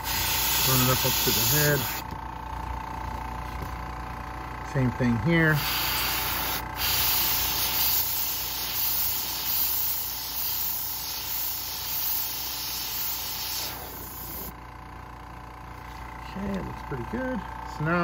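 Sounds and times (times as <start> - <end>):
airbrush hissing: 0.0 - 2.0, 5.6 - 14.6.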